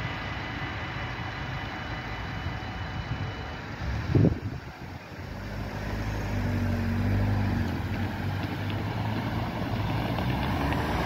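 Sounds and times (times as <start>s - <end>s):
cars driving past: 3.7s - 11.0s.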